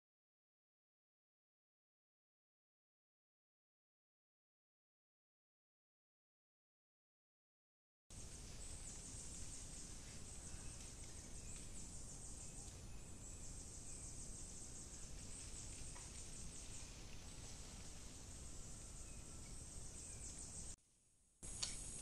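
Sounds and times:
high-pitched insect chorus: 8.1s - 20.8s, 21.4s - 22.0s.

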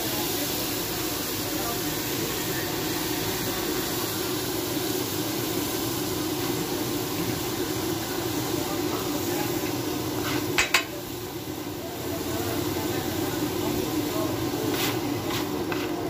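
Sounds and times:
food sizzling on a griddle: 0.0s - 16.0s
metal spatula striking griddle: 10.3s - 10.9s.

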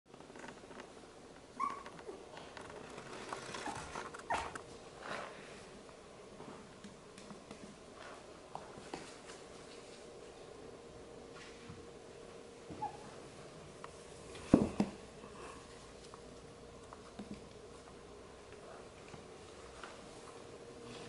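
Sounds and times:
soft clicks and rustles: 0.1s - 5.5s.

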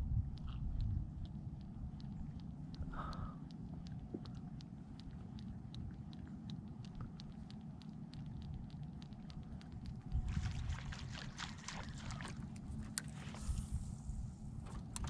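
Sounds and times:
light ticking: 0.0s - 10.3s
wind rumble on microphone: 0.0s - 15.0s.

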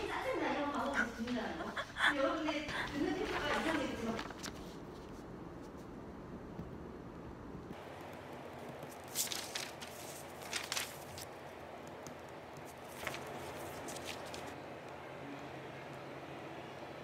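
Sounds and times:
paper rustling: 2.7s - 5.9s, 8.6s - 11.5s, 12.6s - 14.6s.

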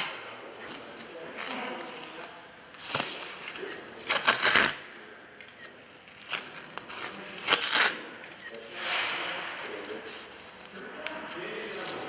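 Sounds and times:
bandage tearing off roll: 0.0s - 4.9s, 6.1s - 8.1s.

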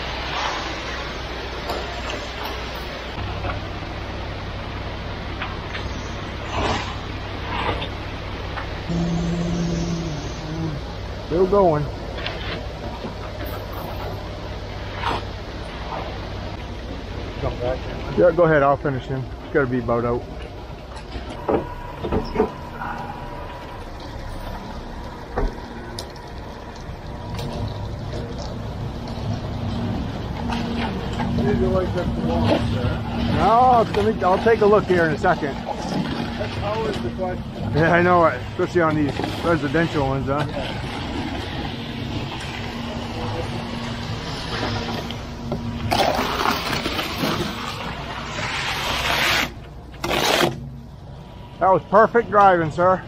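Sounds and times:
diesel engine running: 0.0s - 53.0s
concrete slurry rushing down chute: 27.0s - 50.6s.

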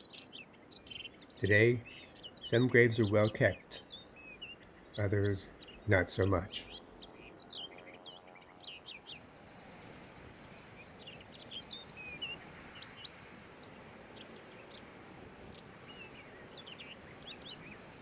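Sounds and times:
songbirds chirping: 0.0s - 18.0s
steady background noise: 0.0s - 18.0s.

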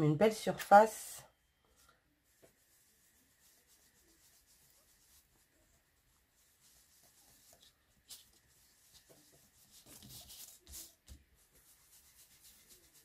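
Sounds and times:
foam applicator rubbing paper: 2.2s - 13.0s
scuffing on paper: 6.6s - 13.0s.

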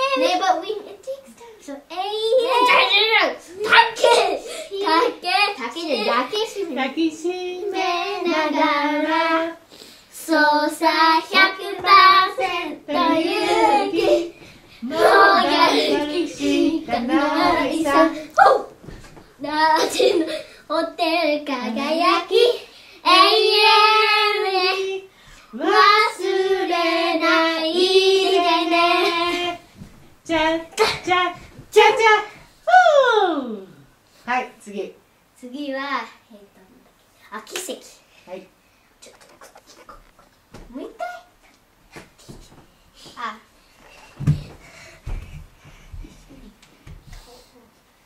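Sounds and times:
children singing: 10.4s - 18.3s.

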